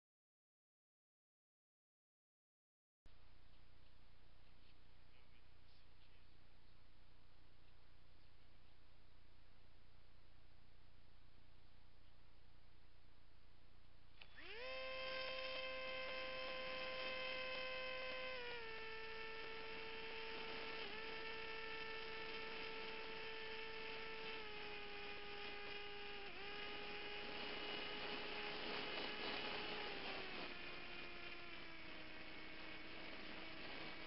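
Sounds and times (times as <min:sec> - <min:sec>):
model aircraft motor whine: 0:14.1 - 0:34.0.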